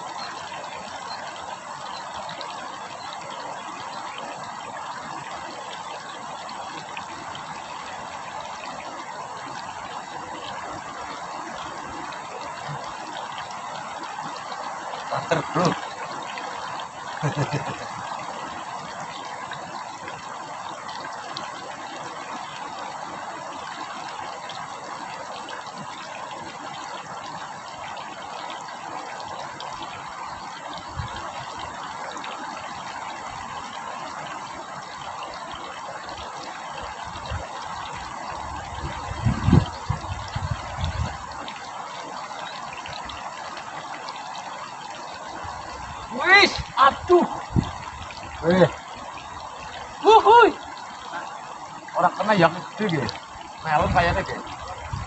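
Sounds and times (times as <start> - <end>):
river water rushing: 0.0 - 55.0
man speaking: 15.1 - 15.8, 46.1 - 47.4, 48.4 - 48.8, 50.0 - 50.6, 52.0 - 54.4.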